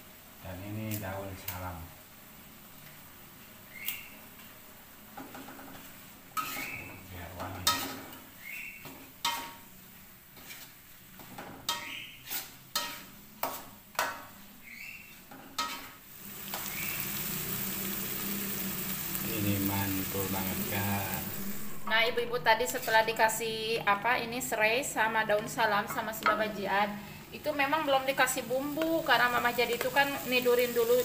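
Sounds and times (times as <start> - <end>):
paste sizzling in a wok: 0.0 - 31.0
metal spatula scraping a wok: 5.4 - 9.7, 10.3 - 14.4, 15.0 - 16.7.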